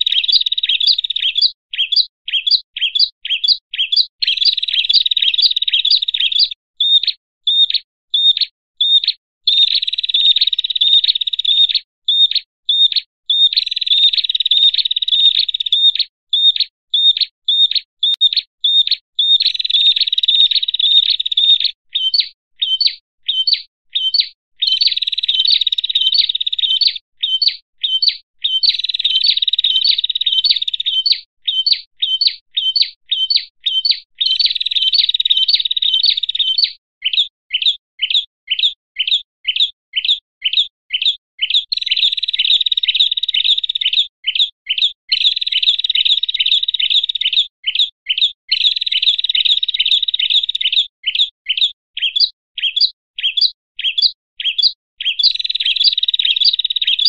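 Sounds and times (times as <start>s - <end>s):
birds chattering trills: 0.0s - 37.2s, 52.0s - 57.0s
songbirds chip notes: 0.0s - 57.0s.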